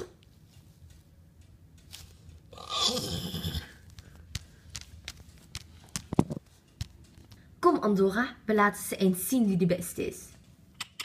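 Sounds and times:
horse neighing: 0:02.6 - 0:03.8.

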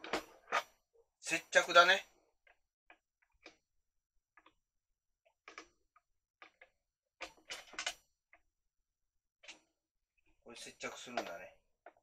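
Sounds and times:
plastic parts clicking together: 0:06.4 - 0:08.5.

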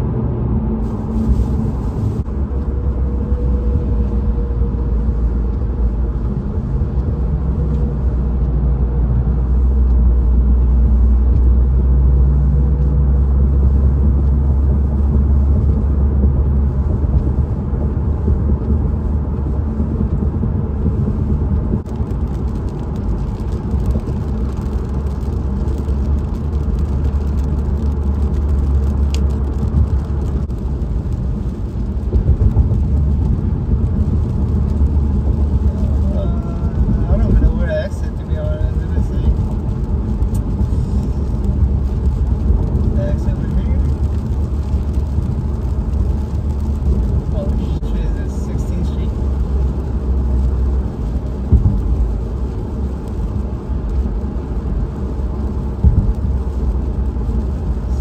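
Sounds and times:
car road noise on wet road: 0:00.0 - 0:58.0.

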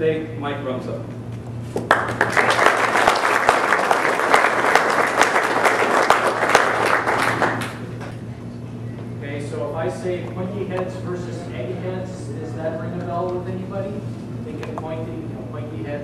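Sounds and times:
audience applauding: 0:01.8 - 0:08.0.

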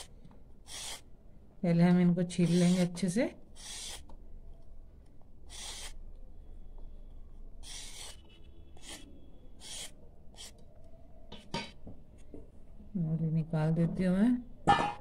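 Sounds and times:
peeler scraping carrot: 0:00.7 - 0:01.1, 0:02.4 - 0:03.0, 0:03.6 - 0:04.1, 0:05.5 - 0:06.0, 0:07.6 - 0:08.2, 0:08.8 - 0:10.6.

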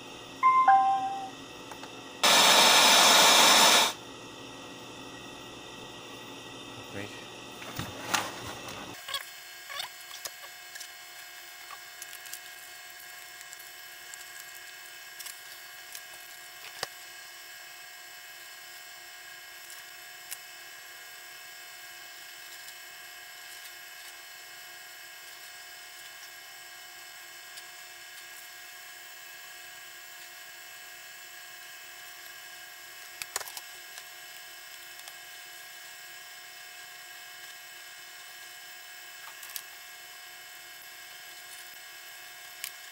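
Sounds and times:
high-pitched electrical whine: 0:00.0 - 0:01.3.

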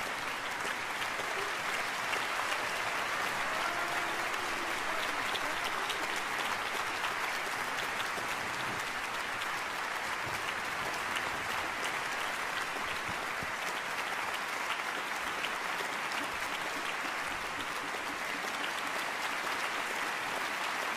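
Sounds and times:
audience applauding: 0:00.0 - 0:20.9.

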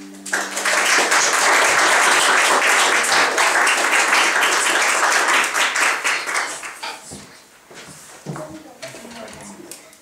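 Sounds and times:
audience applauding: 0:00.2 - 0:06.8.

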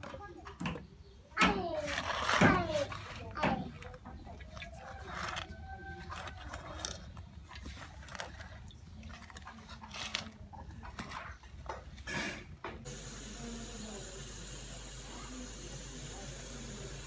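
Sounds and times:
vegetables rustling in a steel bowl: 0:01.6 - 0:12.6.

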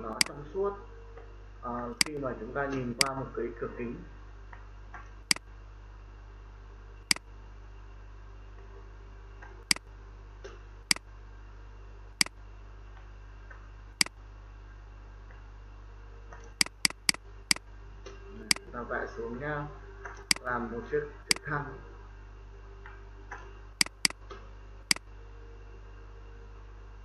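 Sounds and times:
faint low hum: 0:00.0 - 0:27.0
mouse button clicking: 0:00.1 - 0:00.3, 0:16.6 - 0:17.2, 0:23.8 - 0:24.2.

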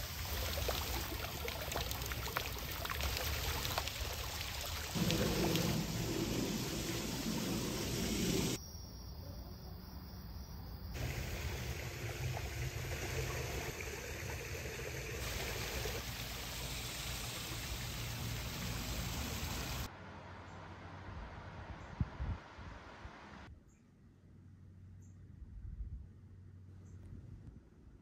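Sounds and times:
water rushing over rocks: 0:00.0 - 0:08.6.

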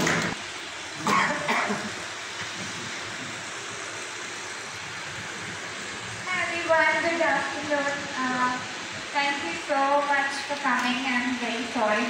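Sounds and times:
room hiss: 0:00.0 - 0:12.0.

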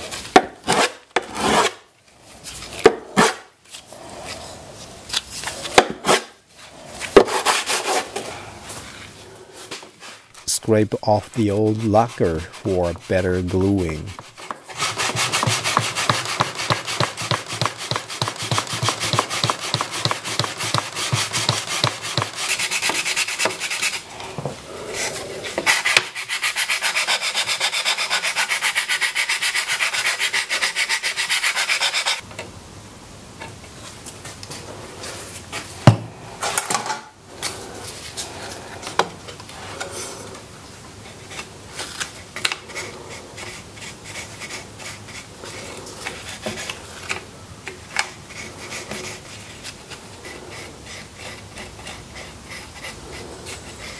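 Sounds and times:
scraping wood by hand: 0:00.4 - 0:01.8, 0:07.0 - 0:08.4, 0:09.6 - 0:32.2, 0:41.2 - 0:53.9
sharp knock on wood: 0:15.3 - 0:22.3.

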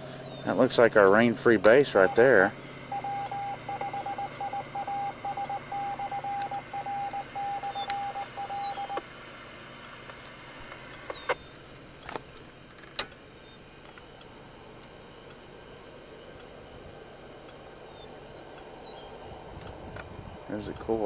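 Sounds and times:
morse code beeps over radio: 0:02.0 - 0:09.0
scattered clicks: 0:03.0 - 0:09.1, 0:20.7 - 0:21.0
radio hiss: 0:10.6 - 0:12.3.

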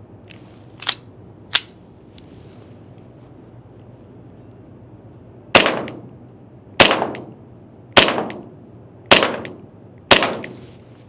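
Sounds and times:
airsoft pistol shots: 0:05.6 - 0:06.0, 0:06.8 - 0:07.3, 0:08.0 - 0:08.5, 0:09.1 - 0:10.6.

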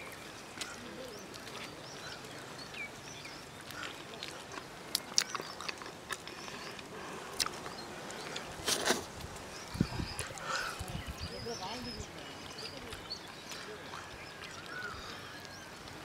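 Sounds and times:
eating by hand clicks and smacks: 0:03.6 - 0:08.5.

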